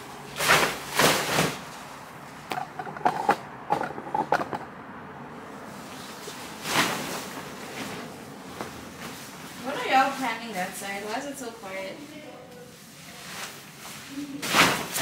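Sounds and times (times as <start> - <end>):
plastic mattress protector rustling: 0.3 - 2.5, 5.8 - 11.3.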